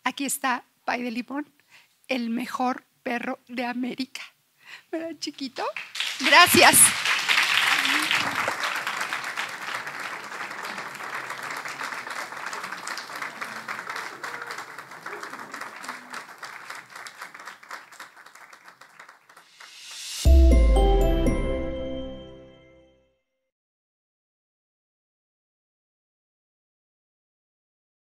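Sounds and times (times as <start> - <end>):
audience applauding: 5.8 - 21.4
musical sting with bass hit: 20.2 - 22.6.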